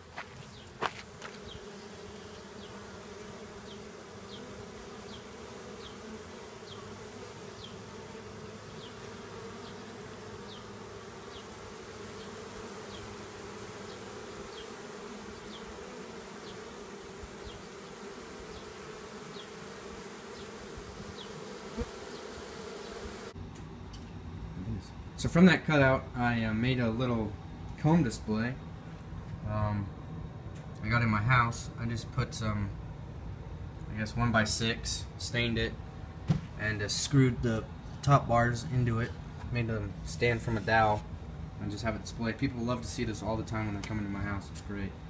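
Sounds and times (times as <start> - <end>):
bees buzzing: 0.0 - 23.4.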